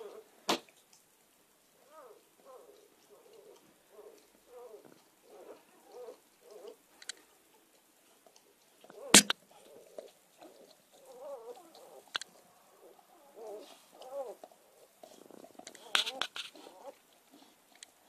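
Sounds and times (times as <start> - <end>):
puppies squeaking and grunting: 1.9 - 6.9, 8.8 - 17.6
sharp click: 9.2 - 9.4.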